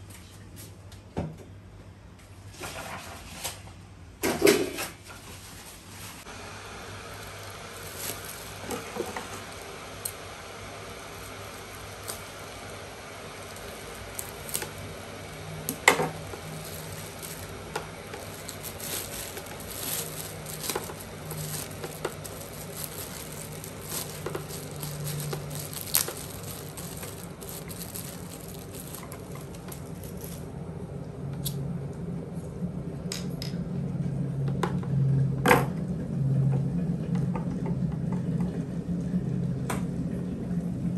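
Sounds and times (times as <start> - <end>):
low hum: 6.3 - 40.9
objects being handled: 7.2 - 30.5.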